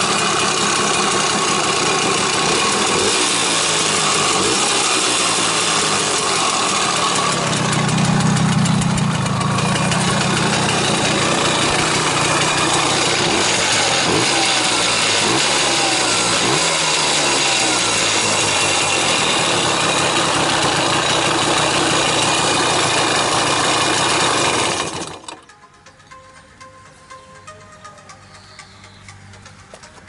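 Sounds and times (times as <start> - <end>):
two-stroke engine running: 0.0 - 25.5, 28.2 - 30.0.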